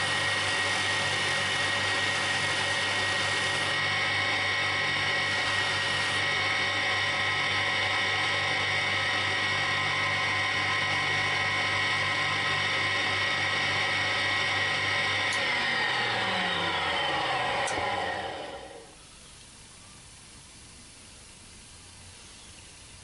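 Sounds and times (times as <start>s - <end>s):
buffing machine humming and whining: 0.0s - 19.0s
click: 17.6s - 17.9s.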